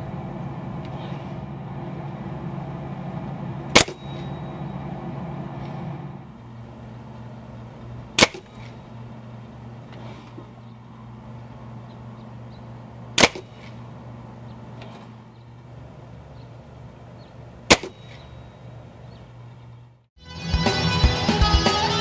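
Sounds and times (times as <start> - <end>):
steady low hum: 0.0 - 20.2
air rifle shots: 3.7 - 4.5, 8.1 - 9.0, 13.1 - 13.8, 17.6 - 18.6.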